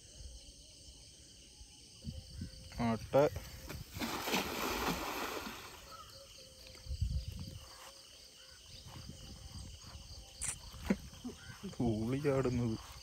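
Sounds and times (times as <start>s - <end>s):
insect chirring: 0.0s - 13.0s
cast net splashing in water: 3.9s - 6.0s.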